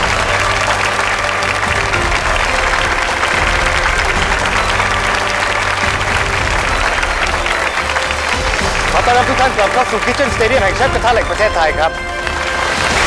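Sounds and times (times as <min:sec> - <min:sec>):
audience applauding: 0:00.0 - 0:13.0
background music with bass: 0:00.0 - 0:13.0.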